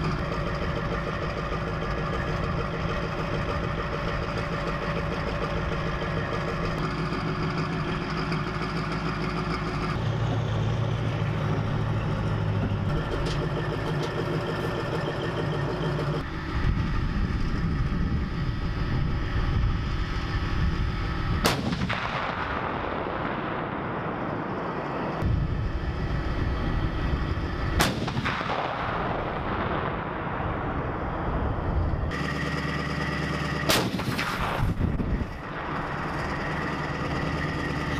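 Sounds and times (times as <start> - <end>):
engine running: 0.0 - 37.9
artillery gun firing: 21.4 - 24.7, 27.7 - 31.2, 33.5 - 37.5.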